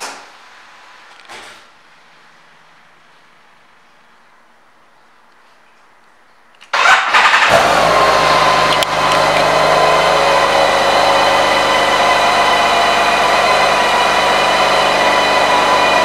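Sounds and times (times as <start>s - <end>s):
motorcycle engine starting and idling: 6.6s - 16.0s.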